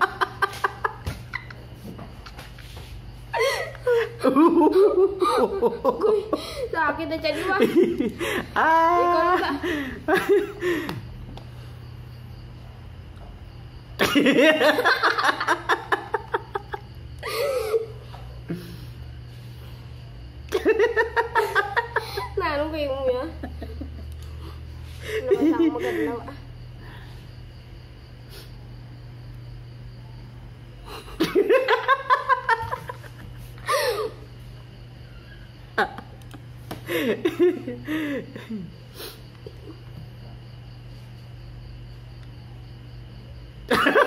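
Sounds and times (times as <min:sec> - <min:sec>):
steady low hum: 0:00.0 - 0:44.0
hearty laughter: 0:03.3 - 0:06.7, 0:07.4 - 0:11.1, 0:14.0 - 0:18.9, 0:20.5 - 0:22.4, 0:30.8 - 0:34.2, 0:36.9 - 0:38.8, 0:43.7 - 0:44.0.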